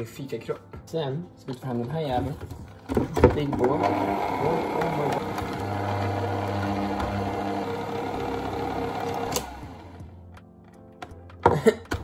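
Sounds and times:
stand mixer motor humming: 3.6 - 10.1.

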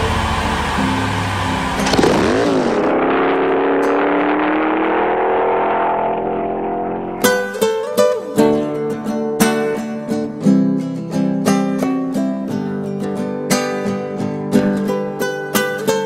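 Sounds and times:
car engine revving: 0.0 - 7.5
acoustic guitar strumming chords: 6.9 - 16.0.

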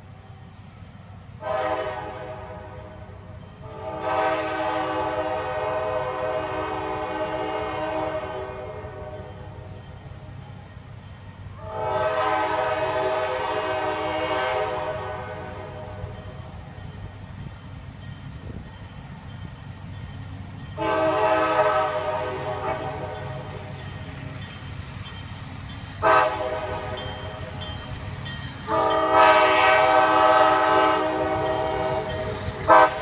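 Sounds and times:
train low rumble: 0.0 - 33.0
train horn blasts: 1.4 - 9.8, 11.5 - 16.6, 20.6 - 23.7, 26.0 - 33.0.

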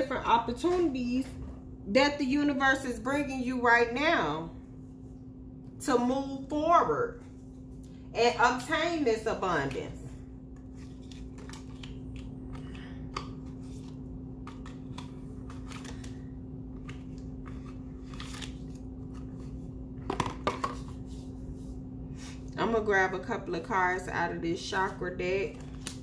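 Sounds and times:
steady low hum: 0.0 - 26.0
cards being shuffled: 10.6 - 21.3, 24.8 - 26.0.

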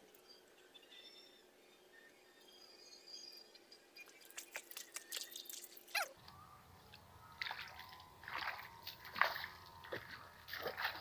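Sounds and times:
water dripping and splashing: 4.1 - 6.1, 6.9 - 11.0
splashing steps in water: 7.4 - 11.0.

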